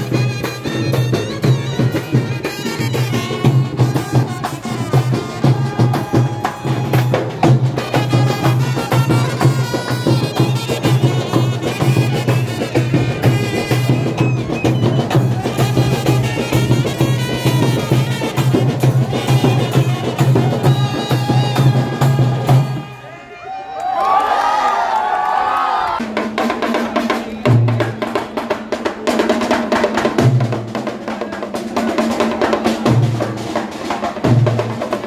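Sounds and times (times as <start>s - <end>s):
snare drums: 0.0s - 23.0s, 26.0s - 35.0s
brass band playing: 0.0s - 23.2s
trumpets playing melody: 0.0s - 23.2s.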